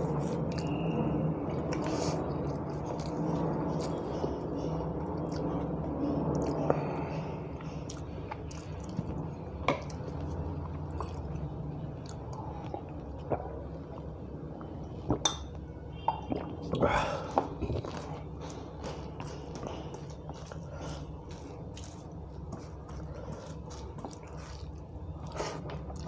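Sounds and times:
chewing: 0:00.0 - 0:00.9, 0:07.6 - 0:15.2, 0:17.4 - 0:26.0
wet squishing of food mixed by hand: 0:17.5 - 0:26.0.

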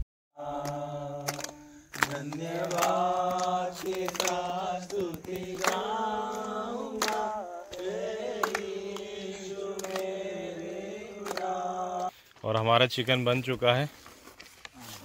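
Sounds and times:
young men singing in unison: 0:00.4 - 0:12.2.

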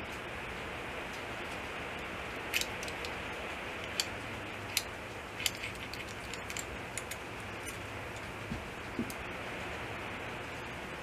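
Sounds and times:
steady background hiss: 0:00.0 - 0:11.0
small metal parts clicking: 0:02.5 - 0:03.2, 0:03.8 - 0:08.3.

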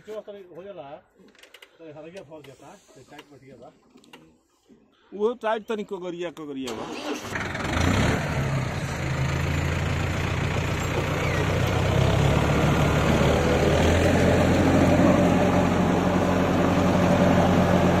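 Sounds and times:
tractor diesel engine running: 0:06.8 - 0:18.0.

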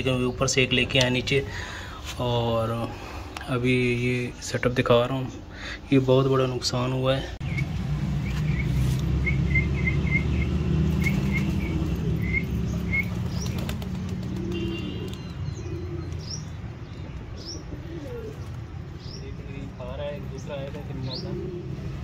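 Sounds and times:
small birds chirping: 0:00.0 - 0:22.0
pigeon wings flapping: 0:10.9 - 0:15.2.

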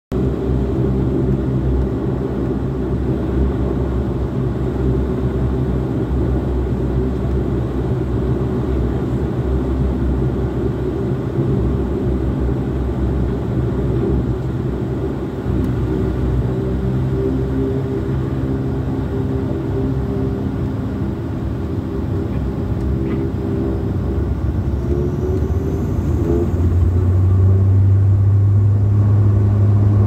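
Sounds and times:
propeller aircraft engine drone: 0:00.1 - 0:30.0.

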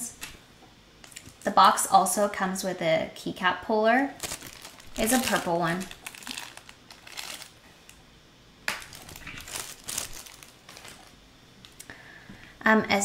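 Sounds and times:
plastic wrapping crinkling: 0:04.2 - 0:08.0, 0:08.7 - 0:11.8.

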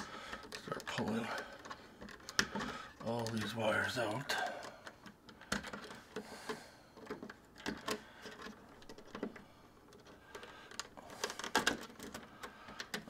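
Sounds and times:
small plastic clicks and taps: 0:04.6 - 0:13.0.

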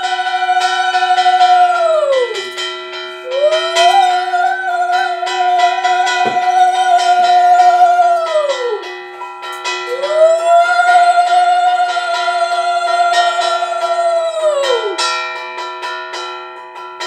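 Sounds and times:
conch shell blown: 0:00.0 - 0:09.2
hand bell ringing rapidly: 0:00.0 - 0:11.2.

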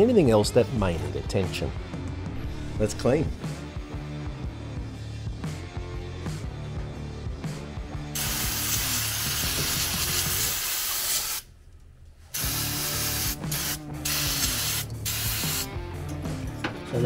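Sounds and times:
aerosol can spraying hiss: 0:08.1 - 0:11.5, 0:12.3 - 0:15.7.

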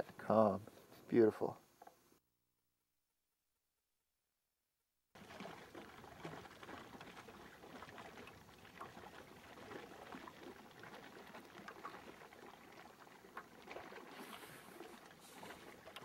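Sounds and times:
water lapping and trickling: 0:05.2 - 0:16.0.

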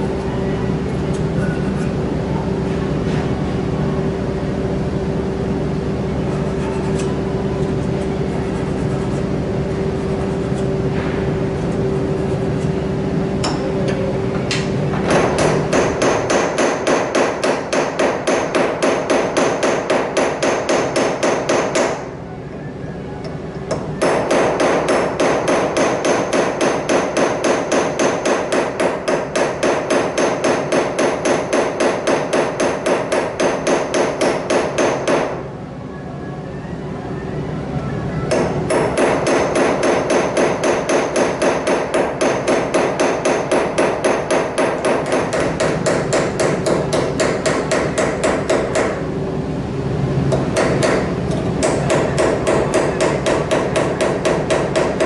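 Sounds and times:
hammer tapping metal on anvil: 0:13.4 - 0:14.6.

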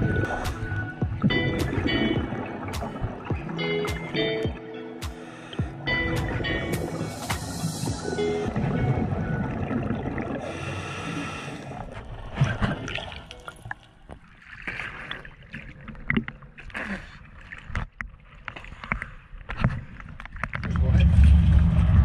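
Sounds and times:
water slapping at surface: 0:00.0 - 0:10.3
background music: 0:00.0 - 0:11.0
water splashing and gurgling: 0:00.0 - 0:22.0.

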